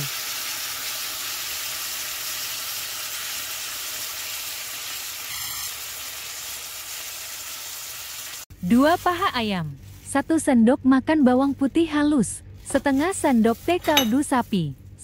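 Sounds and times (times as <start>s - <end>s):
sauce sizzling on a hot plate: 0.0s - 8.5s.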